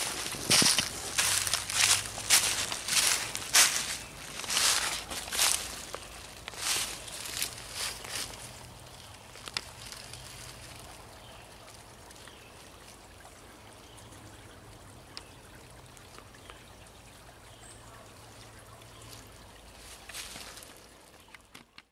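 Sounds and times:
leaves rustling: 0:00.0 - 0:11.2, 0:19.1 - 0:21.0
faint outdoor hiss: 0:00.0 - 0:21.9.

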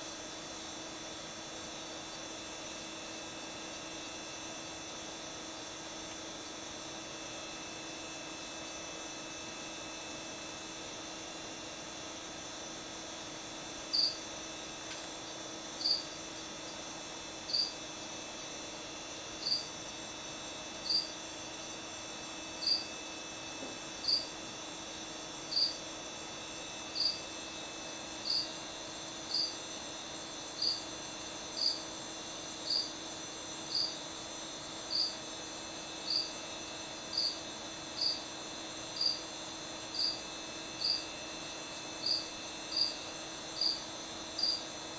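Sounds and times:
cricket chirping: 0:13.8 - 0:17.8, 0:19.4 - 0:20.1, 0:20.8 - 0:21.2, 0:22.6 - 0:23.0, 0:24.0 - 0:24.4, 0:25.5 - 0:25.8, 0:26.9 - 0:27.3, 0:28.2 - 0:28.6, 0:29.2 - 0:29.6, 0:30.4 - 0:30.9, 0:31.6 - 0:31.8, 0:32.6 - 0:33.0, 0:33.7 - 0:34.0, 0:34.9 - 0:35.2, 0:36.0 - 0:36.4, 0:37.1 - 0:37.4, 0:38.0 - 0:38.3, 0:38.9 - 0:39.3, 0:39.9 - 0:41.1, 0:42.0 - 0:44.7.

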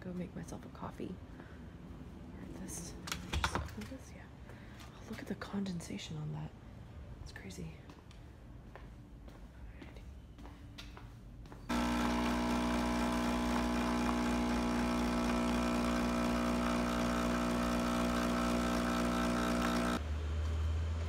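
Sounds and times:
coffee machine pump buzzing: 0:11.7 - 0:20.0.

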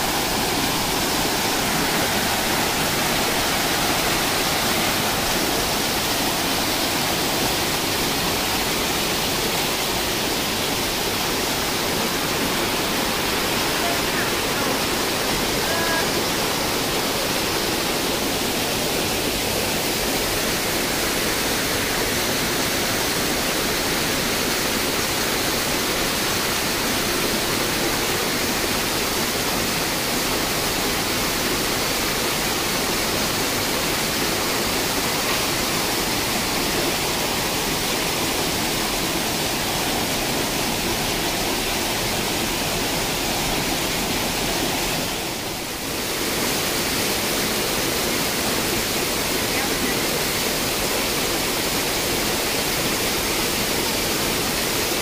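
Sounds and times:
rushing stream and waterfall: 0:00.0 - 0:55.0.

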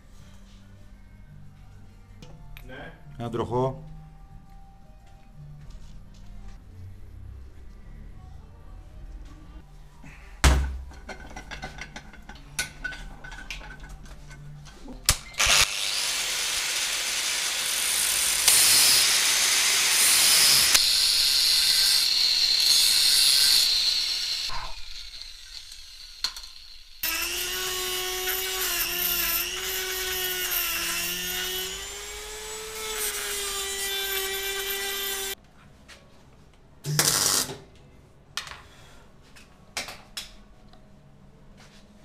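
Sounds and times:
angle grinder grinding steel: 0:15.4 - 0:35.4
grinder whine: 0:15.4 - 0:35.4.

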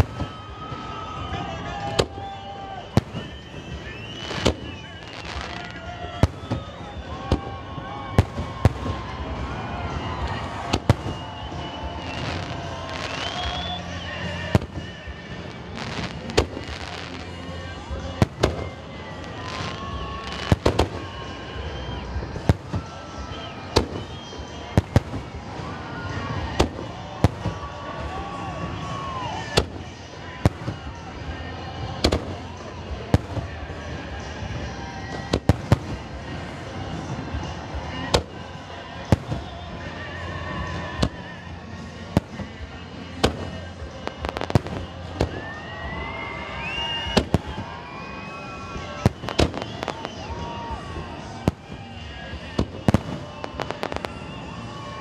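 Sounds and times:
rising firework whistle: 0:00.0 - 0:31.0, 0:43.2 - 0:55.0
crackling firework reports: 0:00.0 - 0:55.0
steady background din: 0:00.0 - 0:55.0.

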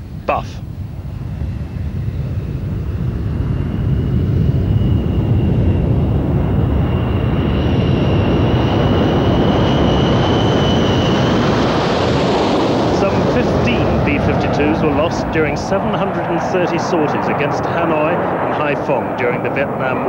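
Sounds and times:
high engine whine: 0:00.0 - 0:20.0
jet engines roaring: 0:00.0 - 0:20.0.

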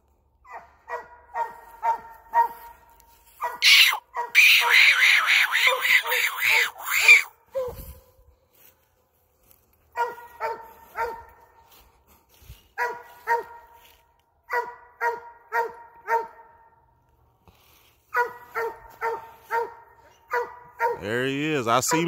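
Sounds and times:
hound barking: 0:00.4 - 0:07.8, 0:09.9 - 0:11.5, 0:12.8 - 0:13.8, 0:14.5 - 0:16.6, 0:18.1 - 0:21.1.

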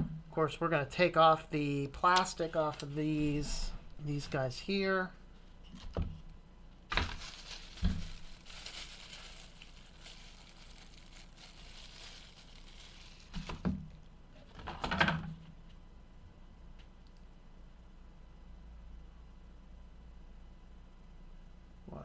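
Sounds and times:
plastic film crinkling: 0:06.9 - 0:14.1.

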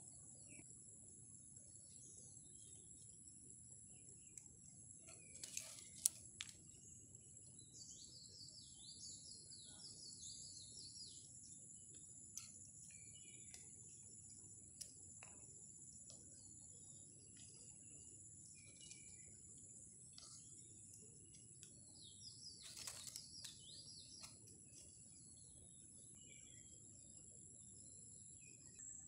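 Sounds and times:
insects droning: 0:00.0 - 0:29.0
bird singing falling notes: 0:07.7 - 0:26.8.

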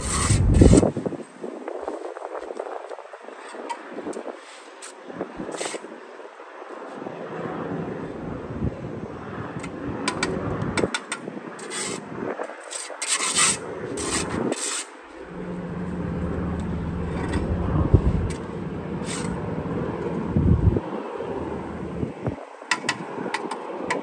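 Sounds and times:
trowel scraping mortar: 0:00.0 - 0:00.9, 0:11.6 - 0:14.9, 0:18.3 - 0:19.4
steady low hum: 0:13.6 - 0:22.6.

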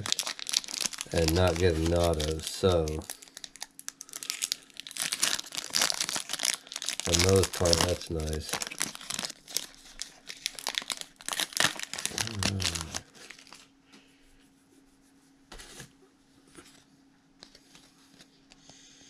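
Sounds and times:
foil wrapper crinkling: 0:00.0 - 0:13.7
faint steady hum: 0:00.0 - 0:19.0.

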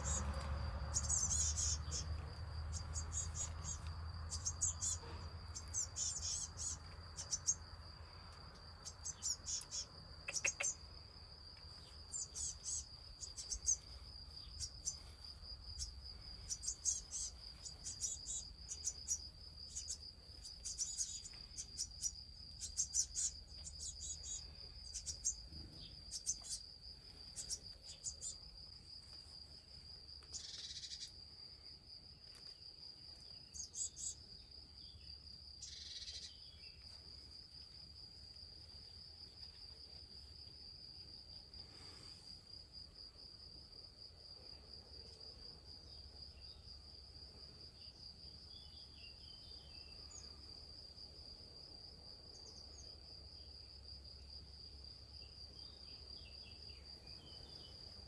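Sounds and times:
high-pitched insect trill: 0:00.0 - 0:28.7.

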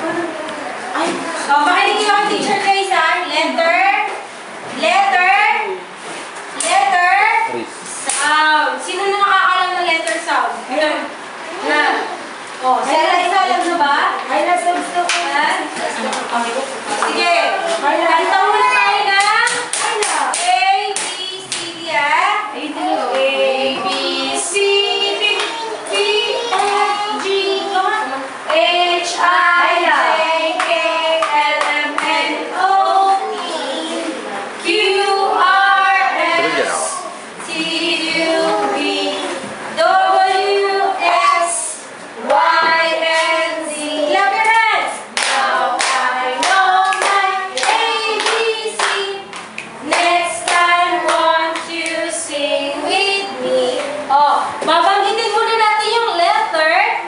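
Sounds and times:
woman singing: 0:17.1 - 0:33.4, 0:34.6 - 0:56.4
children singing: 0:22.6 - 0:54.2
hand claps: 0:45.2 - 0:52.0.

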